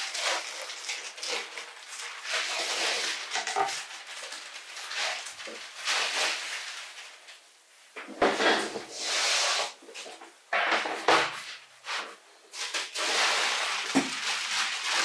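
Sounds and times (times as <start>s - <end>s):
paper rustling and crinkling: 0.0s - 7.4s, 10.8s - 15.0s.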